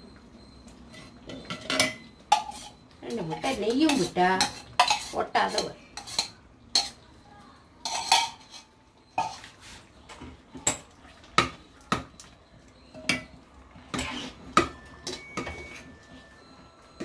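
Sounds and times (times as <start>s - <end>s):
spoon clinking on steel pots: 0.9s - 7.1s, 7.8s - 9.6s, 10.5s - 16.4s.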